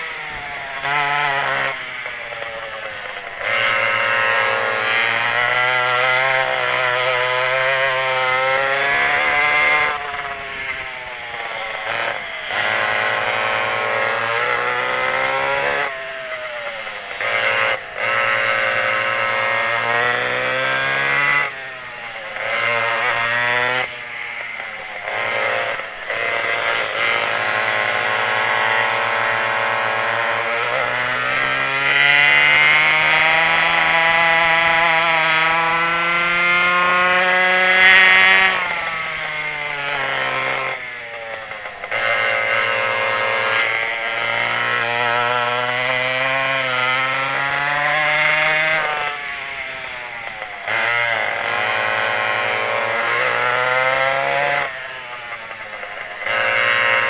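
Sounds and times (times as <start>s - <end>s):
two-stroke kart engines racing: 0.0s - 57.0s.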